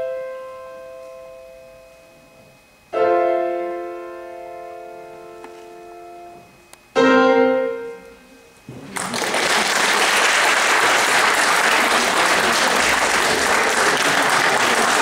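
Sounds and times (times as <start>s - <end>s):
piano chord: 2.9s - 8.4s
audience applauding: 8.8s - 15.0s.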